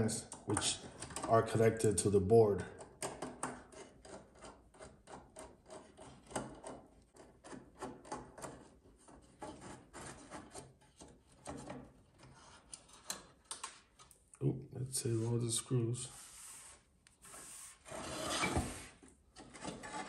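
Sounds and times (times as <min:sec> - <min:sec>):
metal scraping on metal: 0:16.0 - 0:20.0.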